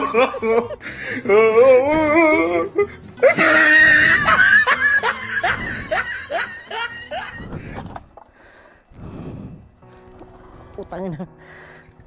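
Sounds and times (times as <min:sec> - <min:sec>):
comedy laughter effect: 0:00.0 - 0:00.8, 0:03.2 - 0:07.8.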